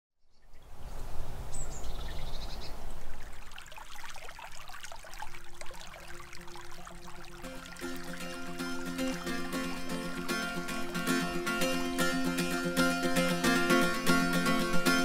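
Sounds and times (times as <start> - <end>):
stream babbling over stones: 1.9 - 15.0
music: 7.3 - 15.0.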